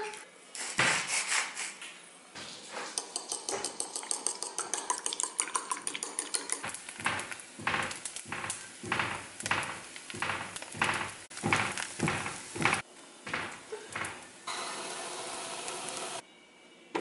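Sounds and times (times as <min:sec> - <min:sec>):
knocking or scraping in pan: 0:06.6 - 0:14.3
flatbread sizzling in pan: 0:06.6 - 0:16.2.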